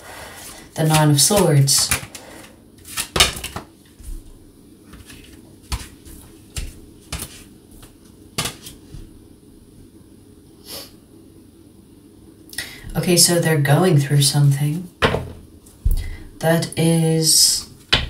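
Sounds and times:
cards shuffled and tapped: 0.8s - 2.2s, 2.8s - 4.3s, 4.9s - 9.1s.

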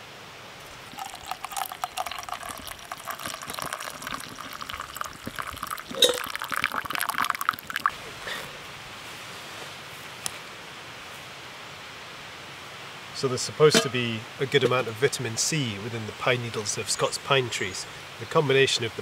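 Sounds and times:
liquid pouring into a mug: 0.6s - 8.0s
sharp clink: 13.7s - 14.0s.

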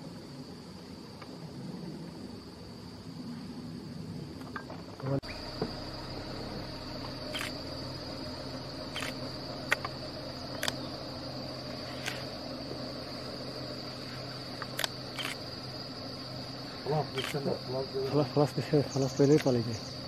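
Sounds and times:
insect chorus drone: 0.0s - 20.0s
low hum: 0.0s - 20.0s
sharp clicks: 7.3s - 7.6s, 8.9s - 10.8s, 14.6s - 15.4s, 19.3s - 19.6s.

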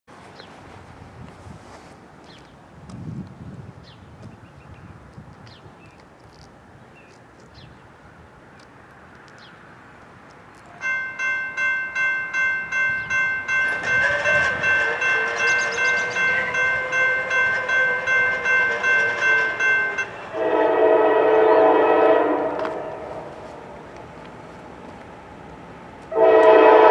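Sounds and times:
crossing warning bell dinging: 10.6s - 23.8s, 26.1s - 26.9s
locomotive horn blasting: 13.6s - 23.3s, 26.1s - 26.9s.

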